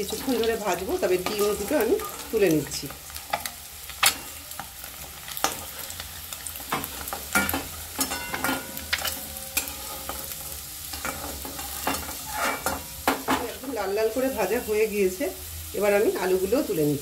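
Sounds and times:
steel spatula scraping metal pan: 0.0s - 2.5s, 5.4s - 13.6s
potatoes sizzling in hot oil: 0.0s - 17.0s.

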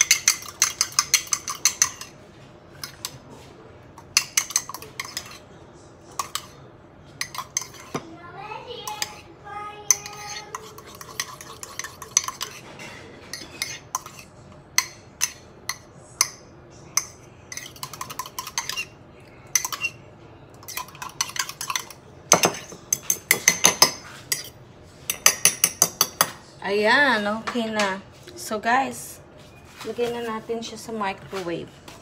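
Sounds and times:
fork clinking in ceramic mug: 9.9s - 16.4s, 17.0s - 18.9s, 19.5s - 20.0s.

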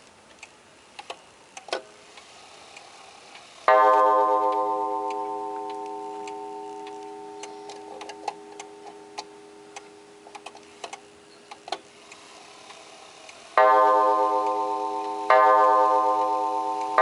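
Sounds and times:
clock hands clicking: 0.4s - 17.0s
clock ticking: 0.4s - 17.0s
wall clock gong ringing: 3.6s - 10.4s, 13.5s - 17.0s.

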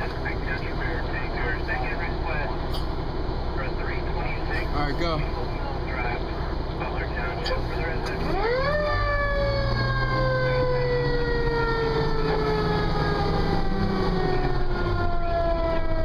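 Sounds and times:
truck engine rumble: 0.0s - 16.0s
siren winding down: 8.3s - 16.0s.

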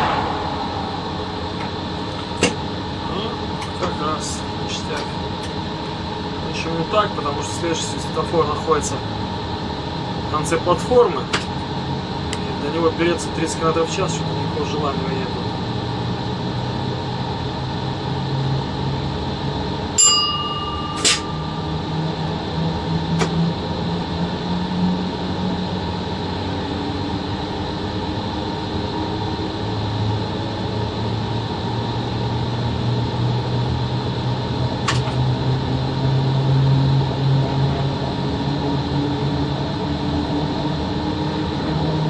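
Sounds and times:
locomotive cab hum: 0.0s - 8.8s, 19.0s - 25.4s.

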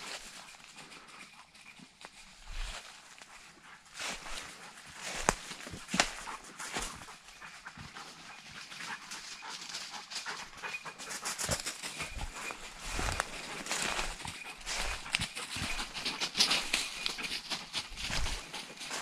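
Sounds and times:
rustling through leaf litter: 12.2s - 17.4s.

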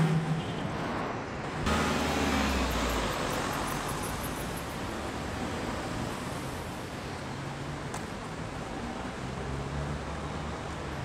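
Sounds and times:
road noise hum: 0.0s - 11.0s
vehicle rumble: 0.0s - 11.0s.

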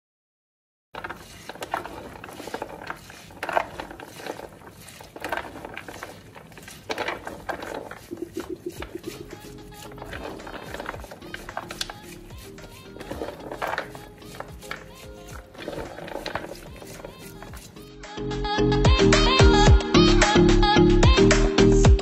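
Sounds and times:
wet beans rattling together: 1.0s - 17.9s.

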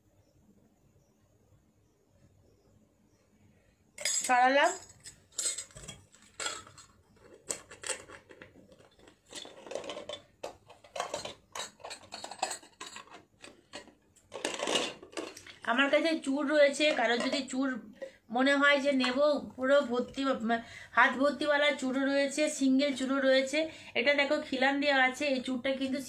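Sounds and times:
metal bangles clinking: 4.0s - 13.6s.

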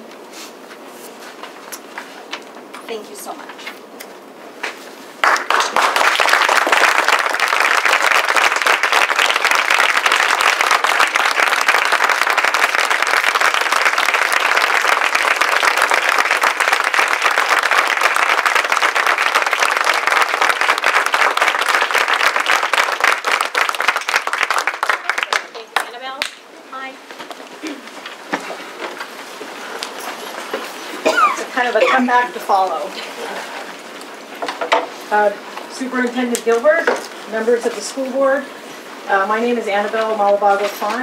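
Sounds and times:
crowd applauding: 5.2s - 26.4s.

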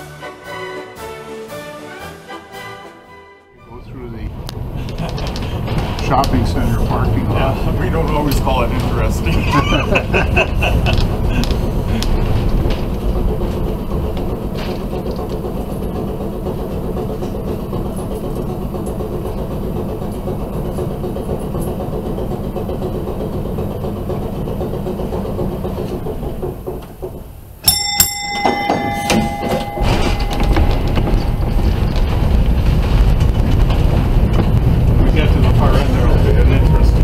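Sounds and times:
streetcar rumbling on track: 3.6s - 37.0s
streetcar bell ringing: 27.6s - 34.1s.

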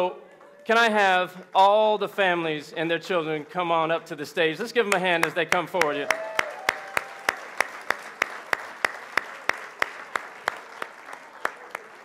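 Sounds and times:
audience applause: 5.8s - 12.0s.

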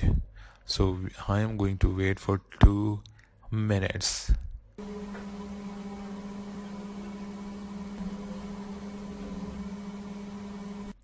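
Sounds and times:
steady hum with faint hiss: 4.8s - 11.0s.

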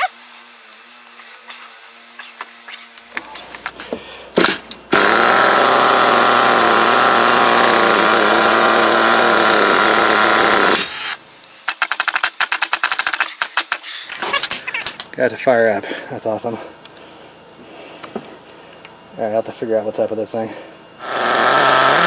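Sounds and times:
small engine running: 0.0s - 14.2s, 21.0s - 22.0s.

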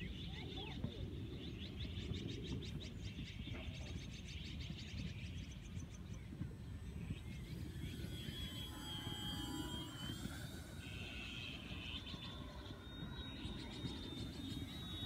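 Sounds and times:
model plane motor whine: 5.1s - 15.0s
bird ticking trill: 6.7s - 15.0s.

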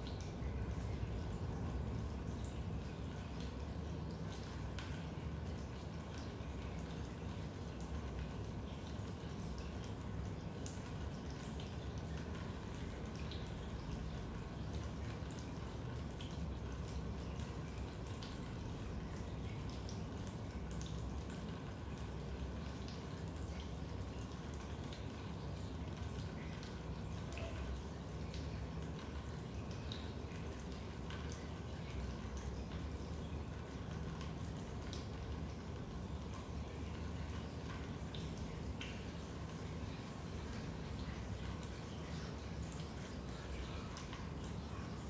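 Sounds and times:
raindrops dripping: 0.0s - 45.0s.

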